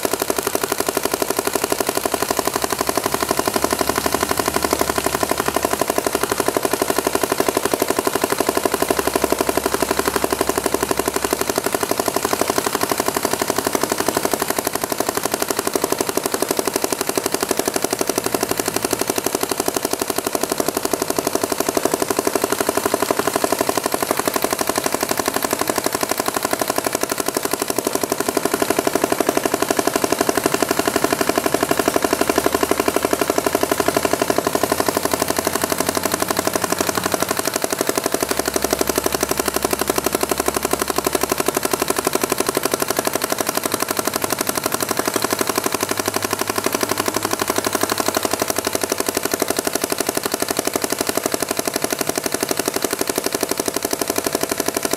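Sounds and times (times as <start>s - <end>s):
paintball marker rapid firing: 0.0s - 54.9s.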